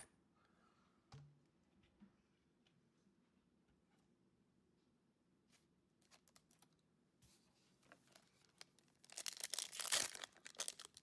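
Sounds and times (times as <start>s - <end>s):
foil pack crinkling: 8.0s - 11.0s
foil pack tearing open: 8.1s - 11.0s.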